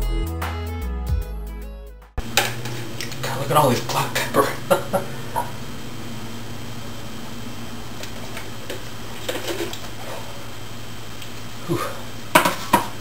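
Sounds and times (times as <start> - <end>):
steady low hum: 2.2 - 13.0
short low grunt: 11.6 - 12.0.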